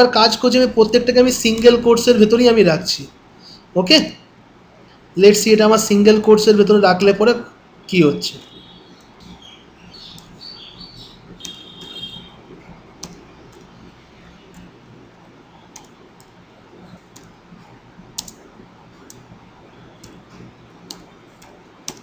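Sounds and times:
keyboard keystrokes: 13.0s - 13.7s, 15.7s - 17.4s, 18.1s - 19.3s, 20.0s - 22.0s
mouse clicks: 13.0s - 13.7s, 15.7s - 17.4s, 18.2s - 18.4s, 20.0s - 22.0s.

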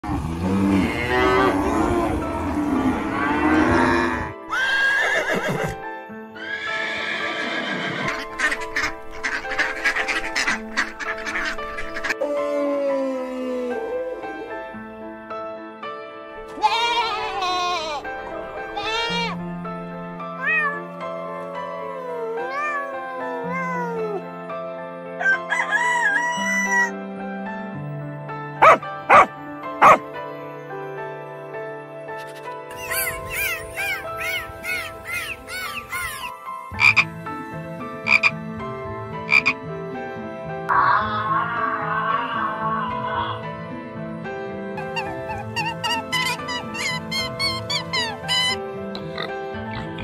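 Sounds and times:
background music: 0.0s - 50.0s
horse neighing: 0.1s - 5.8s, 6.4s - 12.1s
farm animal calls: 6.5s - 12.2s, 28.6s - 30.0s, 32.3s - 37.1s, 38.0s - 38.4s, 39.3s - 39.6s, 44.8s - 50.0s
goat bleating: 16.5s - 18.0s, 18.7s - 19.4s
rooster crowing loudly: 25.2s - 26.9s.

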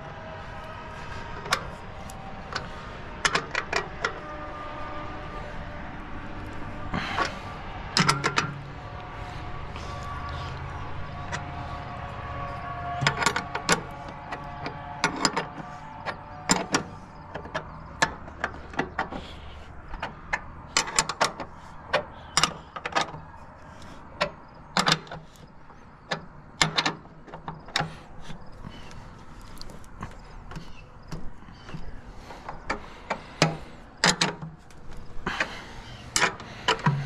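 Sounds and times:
metal clanks and knocks: 2.5s - 4.7s, 7.9s - 8.6s, 9.8s - 19.3s, 29.6s - 35.5s, 36.1s - 37.0s.

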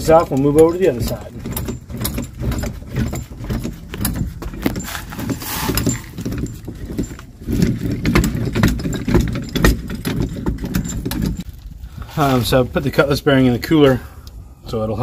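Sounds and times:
metal parts clinking and knocking: 0.0s - 11.6s.

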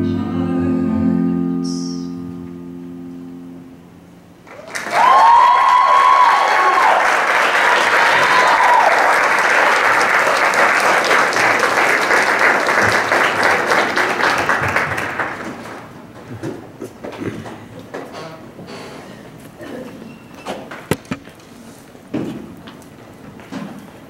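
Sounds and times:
audience applauding: 4.4s - 16.0s
high cheers: 4.5s - 11.9s.

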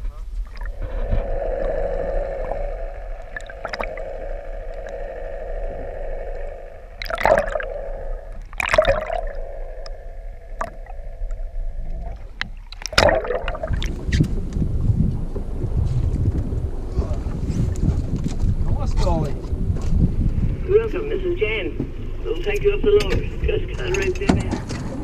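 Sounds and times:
steady hum: 0.0s - 24.2s
wind rumble on microphone: 0.0s - 25.0s
gurgling underwater: 0.4s - 18.6s
loud splashing: 0.5s - 11.2s, 12.5s - 14.2s.

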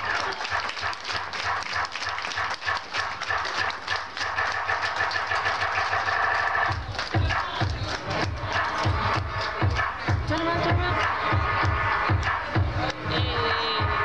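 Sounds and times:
audience applauding and cheering: 0.0s - 14.0s
music with steady bass line: 4.4s - 14.0s.

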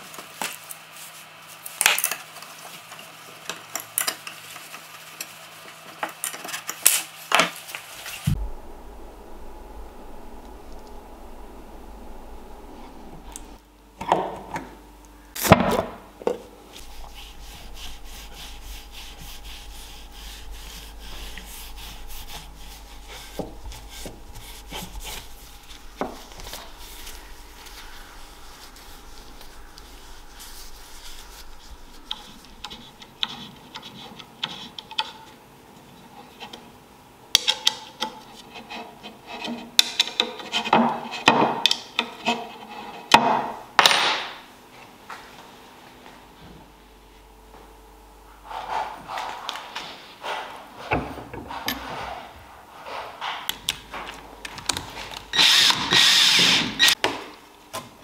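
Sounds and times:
rag rubbing wood: 16.8s - 35.2s.

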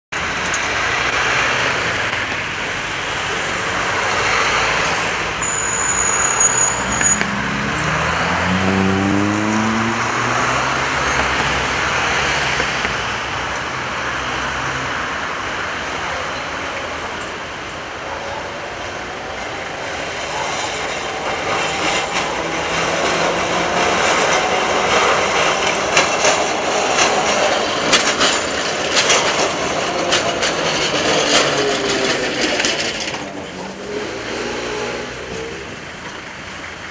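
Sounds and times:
cars driving past: 0.2s - 36.9s
tram rolling on tracks: 0.2s - 36.9s
vehicle accelerating: 0.7s - 16.0s, 19.0s - 36.4s.

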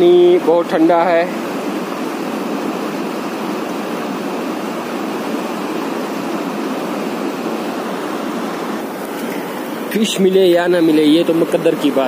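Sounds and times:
stream rushing over rocks: 0.4s - 12.0s.

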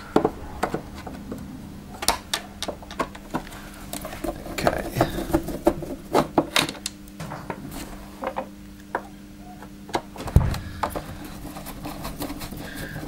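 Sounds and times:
faint steady hum: 0.0s - 13.0s
heavy thump: 10.2s - 11.4s.

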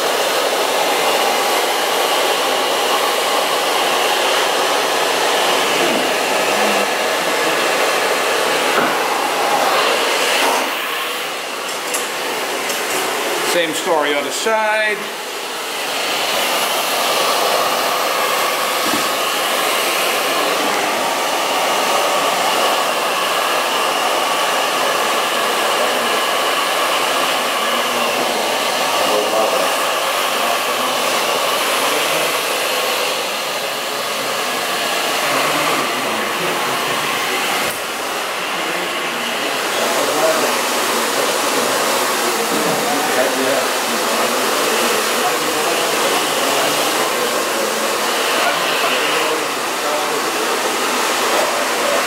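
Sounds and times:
blow dryer running: 0.0s - 52.0s.

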